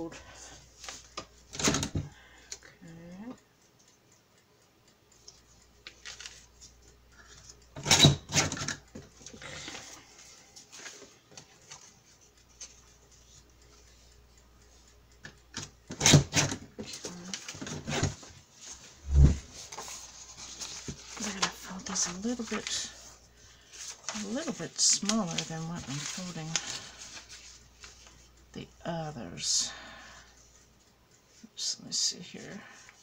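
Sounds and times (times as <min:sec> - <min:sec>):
paper rustling: 0:06.0 - 0:06.4, 0:19.5 - 0:22.8, 0:23.7 - 0:28.1.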